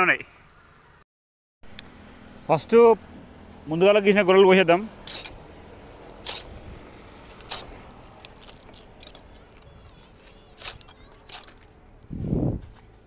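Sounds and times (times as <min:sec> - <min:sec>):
dry palm fibre scraping and crackling: 0:04.8 - 0:13.0
knife scraping: 0:05.0 - 0:05.4, 0:06.1 - 0:06.6.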